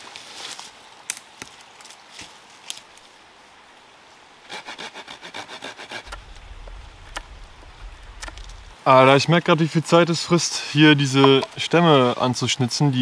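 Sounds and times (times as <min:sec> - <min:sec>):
hand saw cutting wood: 0:04.5 - 0:06.2.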